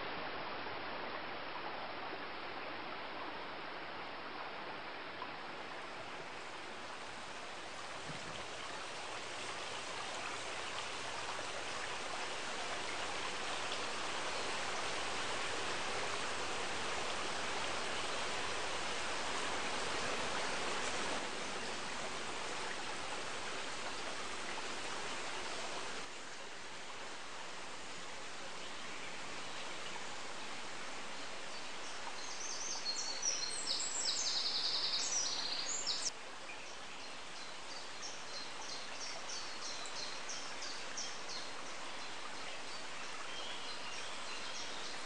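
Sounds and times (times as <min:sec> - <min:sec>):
stream water flowing: 0:00.0 - 0:45.0.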